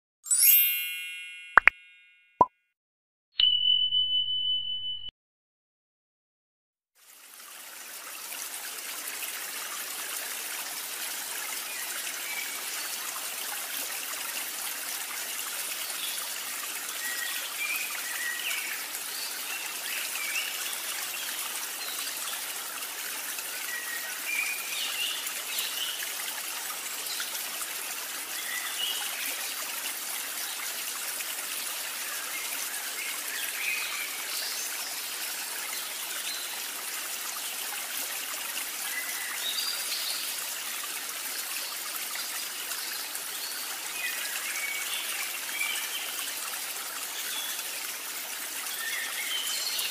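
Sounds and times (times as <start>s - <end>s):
chime tone: 0.2s - 2.4s, 3.4s - 5.1s
flowing water rushing: 7.0s - 49.9s.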